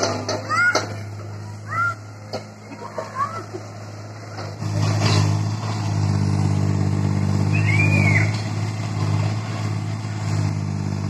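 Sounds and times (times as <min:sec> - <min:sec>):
diesel engine running: 0:00.0 - 0:11.0
high squeal: 0:07.4 - 0:08.4.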